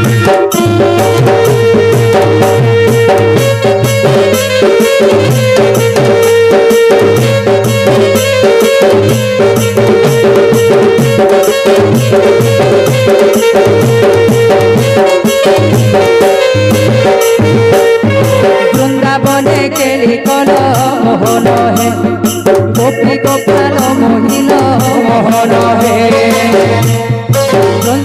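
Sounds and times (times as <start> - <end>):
hand drums beating: 0.0 - 28.0
held melody line: 0.0 - 28.0.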